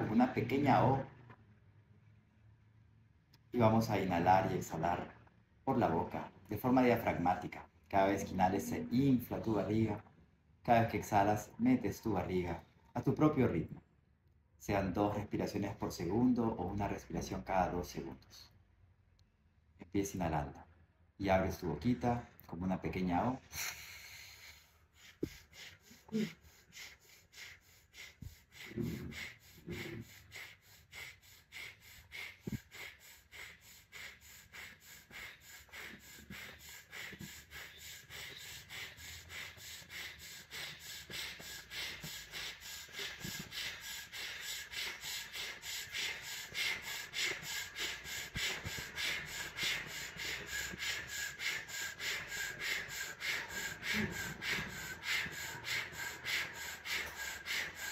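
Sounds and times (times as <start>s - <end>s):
man breathing rapidly through mouth: 23.4s - 57.9s.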